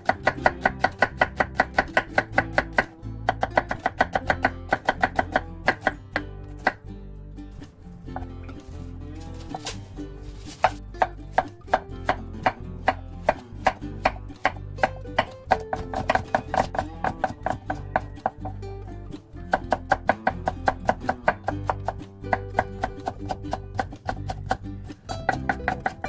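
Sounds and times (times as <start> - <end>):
knife chopping on wooden board: 0.0 - 6.0, 15.2 - 18.6, 19.5 - 24.6, 25.2 - 26.0.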